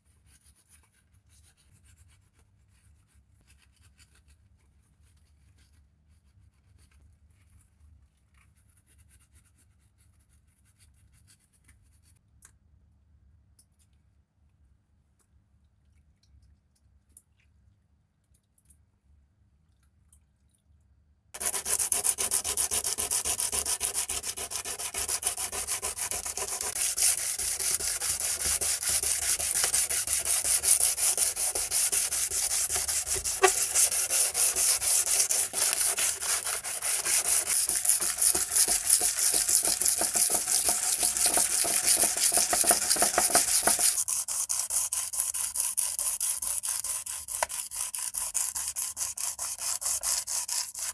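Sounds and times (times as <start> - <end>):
hand sanding metal: 21.4 - 50.9.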